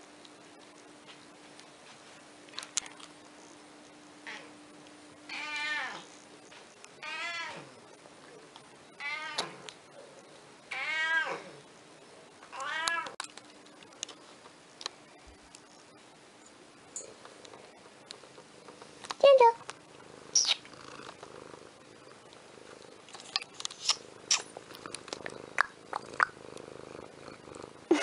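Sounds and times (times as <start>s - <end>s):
cat meowing: 9.0s - 9.6s, 10.7s - 11.5s.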